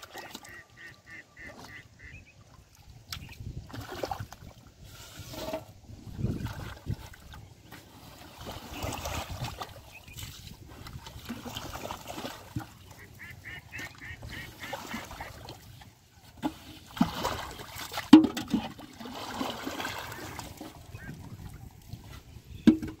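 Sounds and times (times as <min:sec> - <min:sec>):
muddy water splashing and sloshing: 0:00.0 - 0:23.0
heavy splashes: 0:10.6 - 0:15.8, 0:16.8 - 0:21.6.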